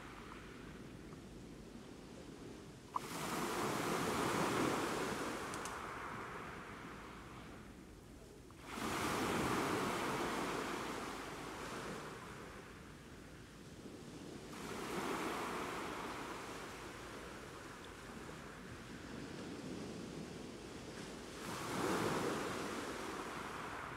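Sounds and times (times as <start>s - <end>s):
sea waves washing on shore: 2.9s - 7.7s, 8.6s - 13.0s, 14.4s - 23.9s.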